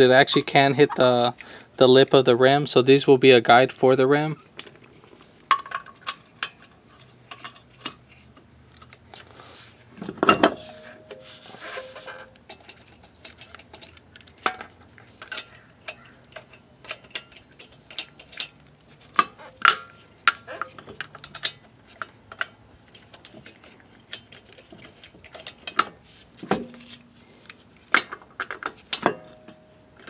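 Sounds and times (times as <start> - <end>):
metallic clank with ring: 10.3 - 12.4, 29.0 - 29.8
lug nuts clinking together: 12.2 - 22.6
nuts ticking against wheel studs: 12.6 - 22.5.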